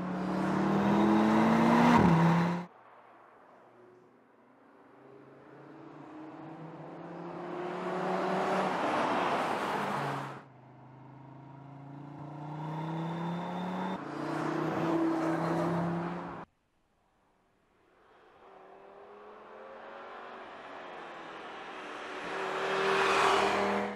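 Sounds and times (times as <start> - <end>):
car engine accelerating hard: 0.0 - 2.7.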